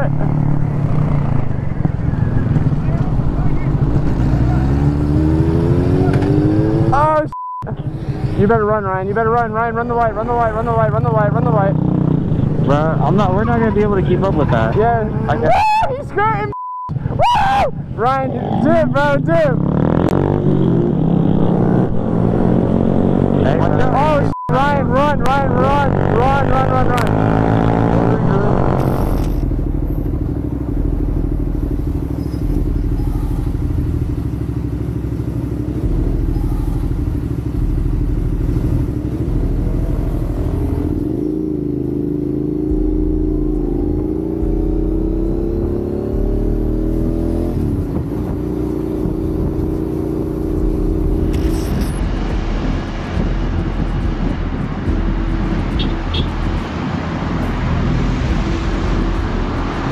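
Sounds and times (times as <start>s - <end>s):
road and wind hiss: 0.0s - 7.2s, 25.8s - 59.9s
motorcycle engine revving: 0.0s - 15.3s, 18.0s - 59.9s.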